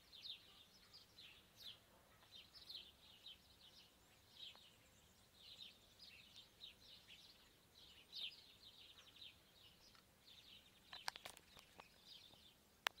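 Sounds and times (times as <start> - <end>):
small birds chirping: 0.0 - 13.0
sharp clicks: 10.9 - 11.9.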